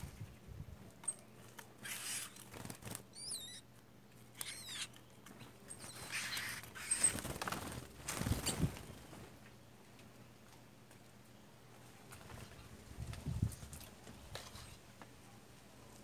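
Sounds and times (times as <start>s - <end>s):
bird wings fluttering: 1.5s - 3.2s, 4.3s - 9.4s, 12.1s - 14.8s
high squeaky bird calls: 1.8s - 2.5s, 3.1s - 3.7s, 4.3s - 7.3s.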